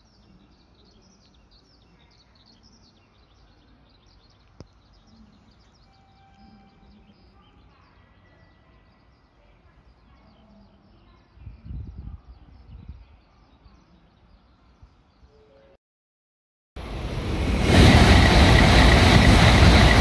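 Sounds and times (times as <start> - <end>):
small birds chirping: 0.0 - 15.3.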